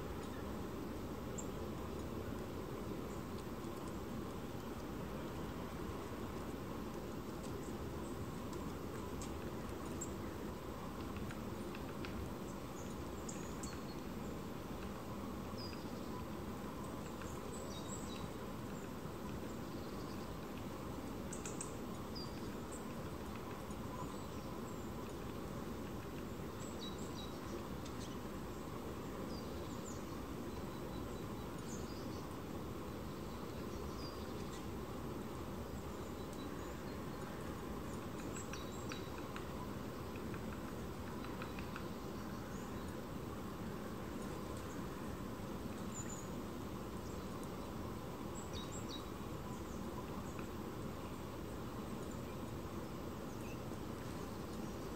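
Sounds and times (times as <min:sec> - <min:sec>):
songbirds chirping: 0:00.0 - 0:54.9.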